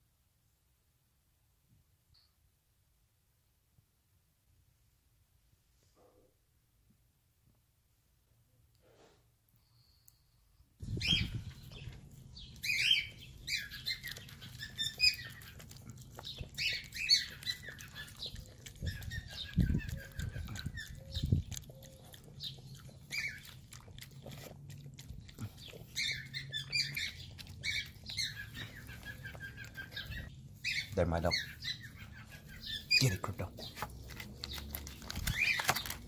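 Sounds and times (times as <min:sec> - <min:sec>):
birds chirping and squawking: 0:10.8 - 0:36.0
dog licking and lapping: 0:11.8 - 0:30.3.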